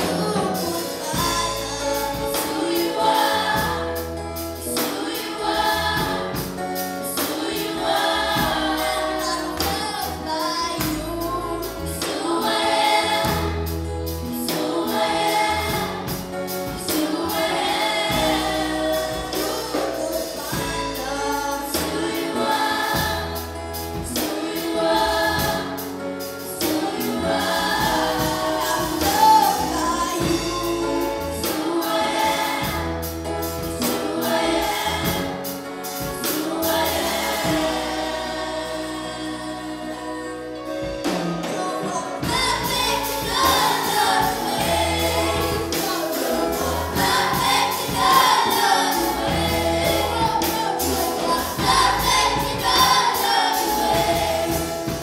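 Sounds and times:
girl singing lead: 0.0 - 4.1, 36.0 - 55.0
children singing: 0.0 - 55.0
instrumental backing with beat: 40.5 - 55.0.

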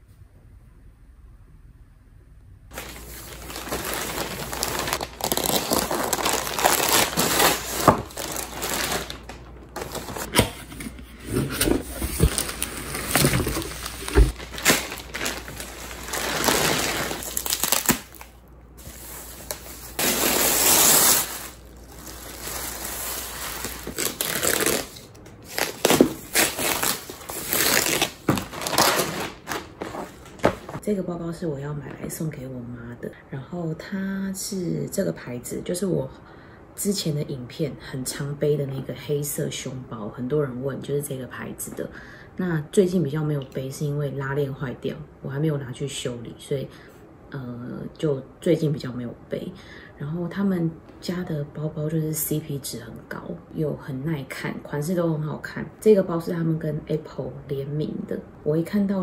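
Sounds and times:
plastic packaging crinkling: 2.7 - 10.5, 11.8 - 30.8.

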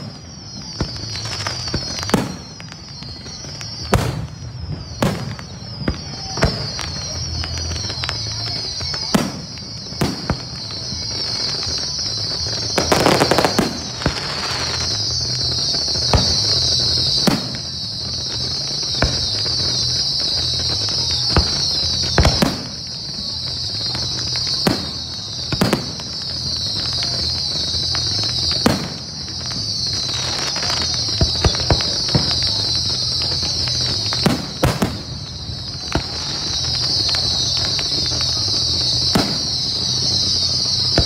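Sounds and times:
fireworks bangs and pops: 0.0 - 41.0
high-pitched hiss: 0.0 - 41.0.

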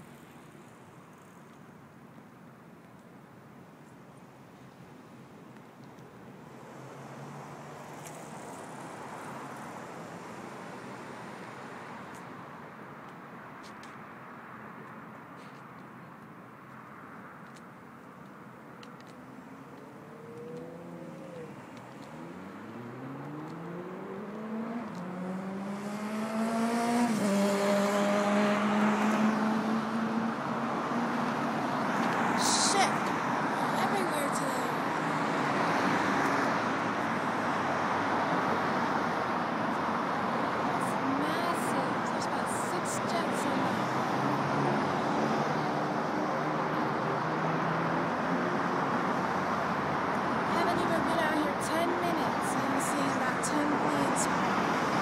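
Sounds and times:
distant traffic: 0.0 - 55.0
vehicle engine accelerating: 19.3 - 32.4, 43.4 - 51.2.

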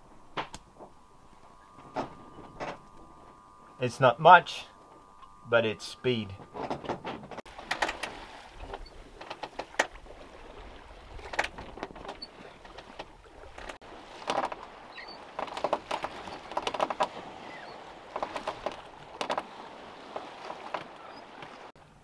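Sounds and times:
wind rumble on microphone: 0.0 - 21.7
water slapping against hull: 6.5 - 21.7.

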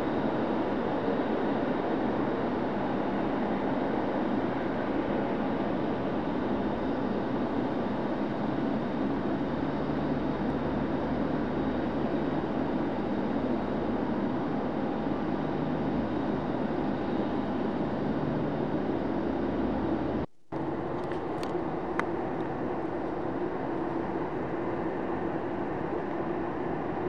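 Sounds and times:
jet engine noise: 0.0 - 27.0.

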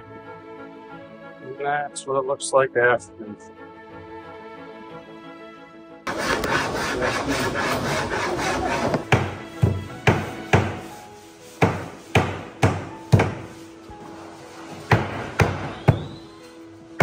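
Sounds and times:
background music: 0.0 - 17.0
hammer blows on wood: 6.1 - 11.0, 11.6 - 13.6, 14.8 - 17.0.

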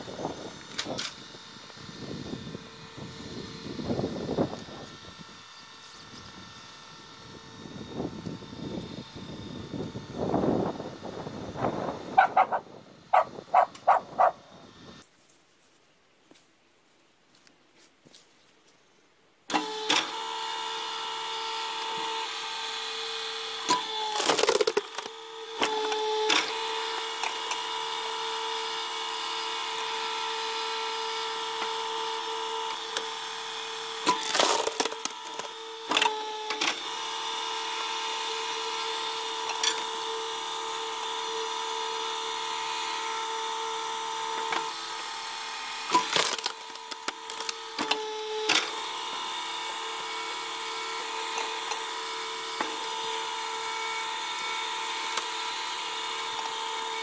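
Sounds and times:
log splitter motor hum: 0.0 - 15.1, 19.4 - 57.0
wood splintering cracks: 24.2 - 25.1, 34.1 - 35.5, 45.9 - 47.6.

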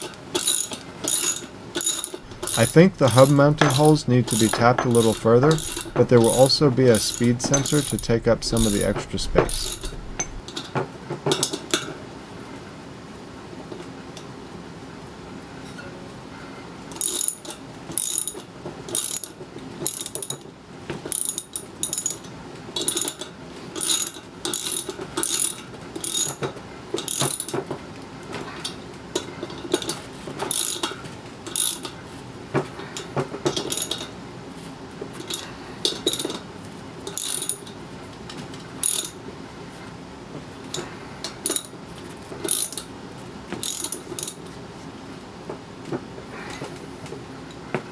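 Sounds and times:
ratchet wrench clicking: 0.0 - 10.4, 17.0 - 17.4, 37.1 - 37.7, 38.8 - 39.2, 42.5 - 42.8, 43.6 - 44.4.

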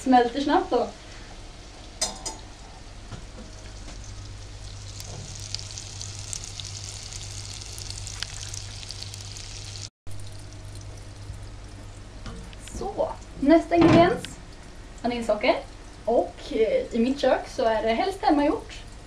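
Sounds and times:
butter sizzling in a saucepan: 0.4 - 10.8.

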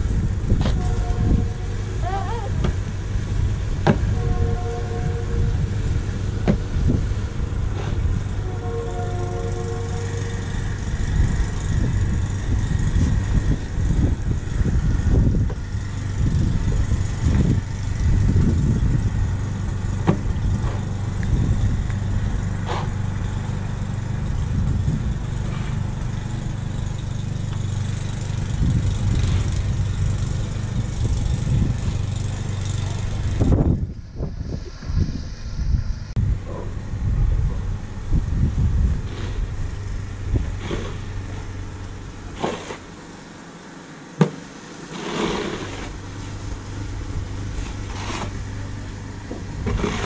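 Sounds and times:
wind gusting against microphone: 0.0 - 23.3, 24.2 - 25.5, 27.8 - 41.6
steady low hum: 0.0 - 50.0
snow shovel scraping: 39.0 - 39.5, 40.4 - 41.5, 42.3 - 43.0, 44.8 - 46.4, 47.5 - 48.5, 49.6 - 50.0.

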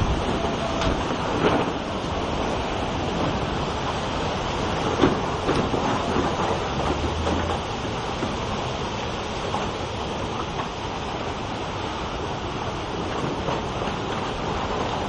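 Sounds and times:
heavy rain: 0.0 - 15.0
strong wind: 0.0 - 15.0.

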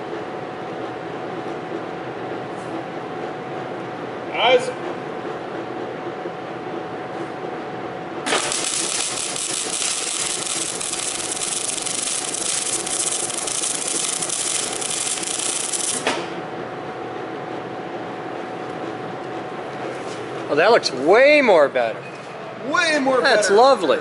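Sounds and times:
welding arc crackling: 8.2 - 16.3.

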